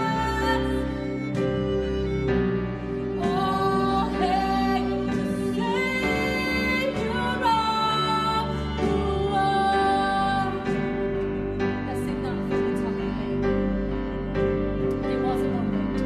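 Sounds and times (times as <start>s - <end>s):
woman singing: 0.0s - 1.4s, 3.1s - 14.0s, 15.0s - 16.0s
violin: 0.0s - 16.0s.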